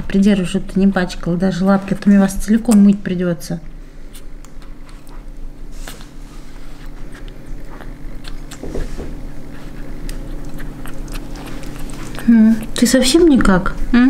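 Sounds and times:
puppy smacking wet food: 0:07.0 - 0:12.9.

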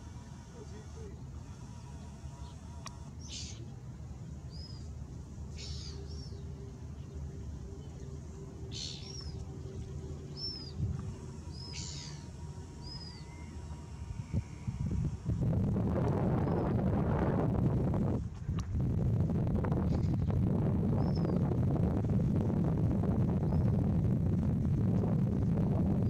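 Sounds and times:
shorebirds calling: 0:00.0 - 0:15.4, 0:20.8 - 0:21.6
low rumble: 0:04.0 - 0:26.0.

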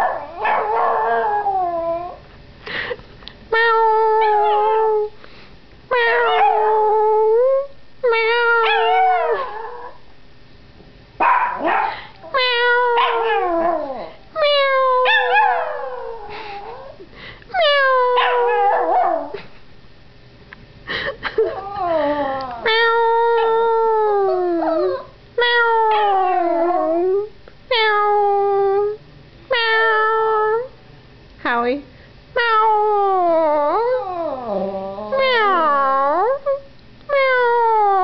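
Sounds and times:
puppy howling: 0:00.0 - 0:02.2, 0:03.7 - 0:05.1, 0:05.9 - 0:10.0, 0:12.3 - 0:17.0, 0:17.6 - 0:19.4, 0:21.5 - 0:30.7, 0:32.4 - 0:38.0.

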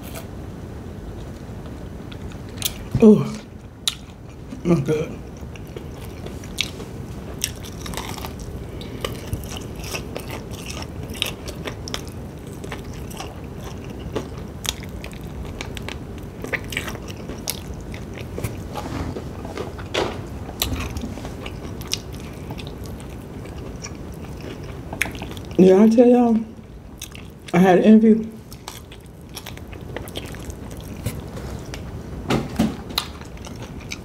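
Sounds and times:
biting and chewing: 0:05.2 - 0:25.6, 0:26.7 - 0:27.6, 0:28.4 - 0:31.9, 0:32.8 - 0:34.0.

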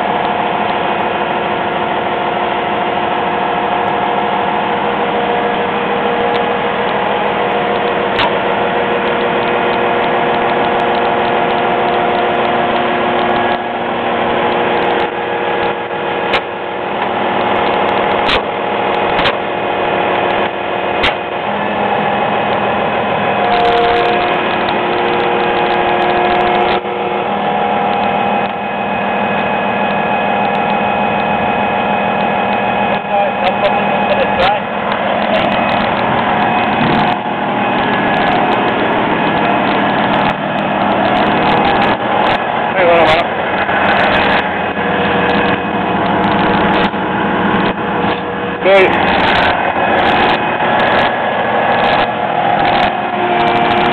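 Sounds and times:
excavator diesel engine running: 0:00.0 - 0:53.9
metallic clanks of steel tracks: 0:05.2 - 0:31.4.

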